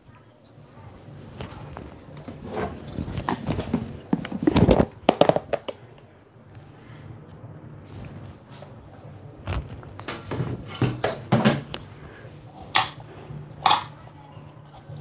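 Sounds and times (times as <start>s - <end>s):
steady low hum: 0.0s - 15.0s
metal bangles and utensils clinking: 2.2s - 3.6s, 10.8s - 11.4s, 12.6s - 14.1s.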